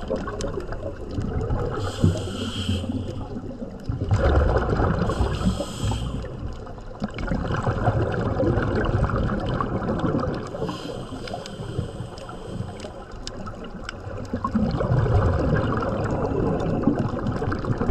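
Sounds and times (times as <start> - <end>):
underwater sloshing and bubbling: 0.0 - 17.9
short hisses: 1.8 - 3.3, 5.1 - 6.3.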